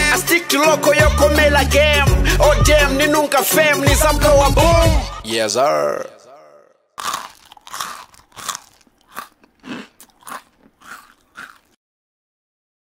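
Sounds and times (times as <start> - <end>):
short crunches: 7.0 - 11.8.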